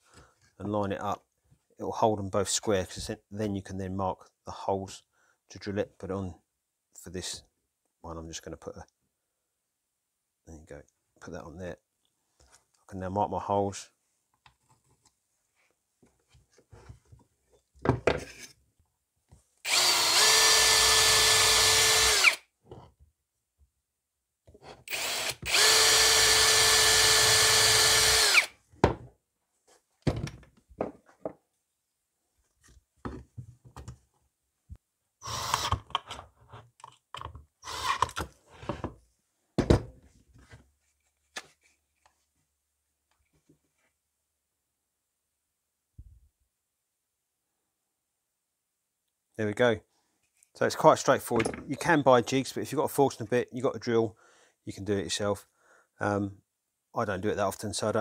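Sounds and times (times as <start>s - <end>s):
power drill running: 19.7s - 22.4s, 24.9s - 28.5s, 35.2s - 35.8s, 37.6s - 38.2s.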